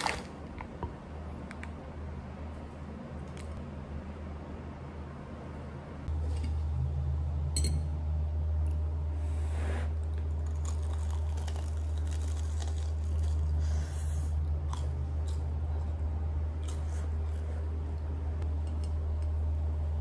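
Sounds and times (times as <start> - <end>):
steady low hum: 0.0 - 20.0
crunching and chewing: 10.1 - 13.8, 14.6 - 16.0, 16.6 - 17.5.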